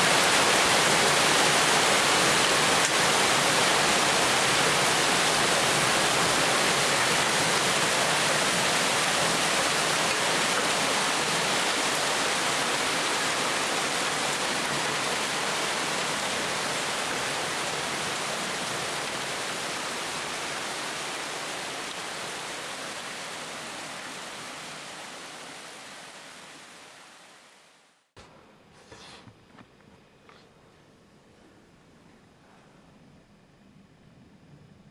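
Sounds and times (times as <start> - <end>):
hail and heavy rain pelting: 0.0 - 19.9.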